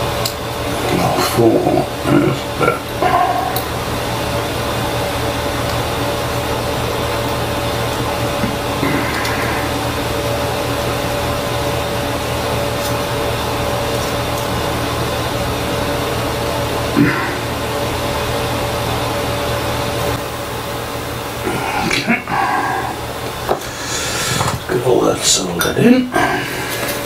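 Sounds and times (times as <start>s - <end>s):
low hum: 0.0s - 24.8s
thin steady whine: 0.0s - 27.0s
steady hiss: 21.4s - 26.1s.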